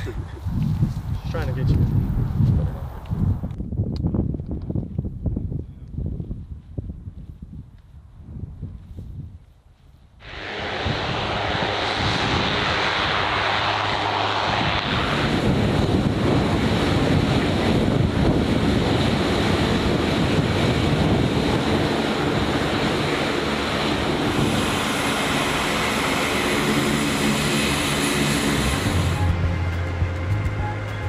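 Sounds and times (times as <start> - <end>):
turboprop engines running: 10.2 - 31.0.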